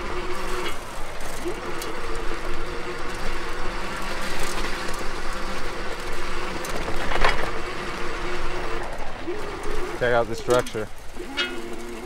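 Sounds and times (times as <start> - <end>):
electric bike motor whine: 0.0 - 12.0
tyres on sandy rocky ground: 0.0 - 12.0
metal fenders rattling: 10.0 - 12.0.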